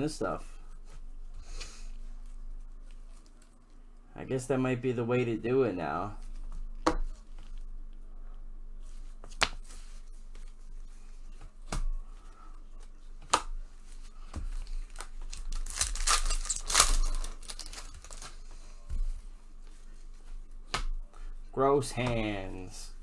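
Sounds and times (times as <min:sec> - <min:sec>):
foil wrapper tearing and crinkling: 0:14.9 - 0:18.4.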